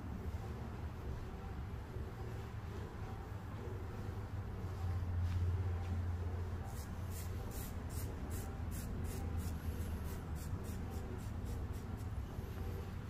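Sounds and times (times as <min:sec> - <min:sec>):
low steady hum: 0:00.0 - 0:13.0
razor scraping through wet hair: 0:06.7 - 0:12.2.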